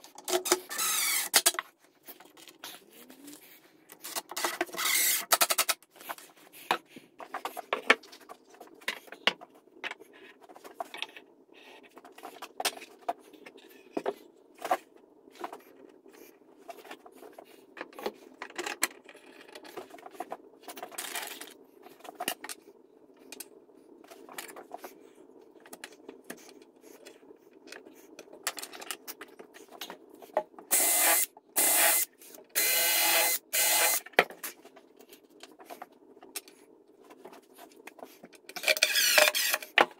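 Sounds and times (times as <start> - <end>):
cordless drill driving screws: 0.6 - 1.4, 4.8 - 5.3, 30.7 - 32.0, 38.9 - 39.6.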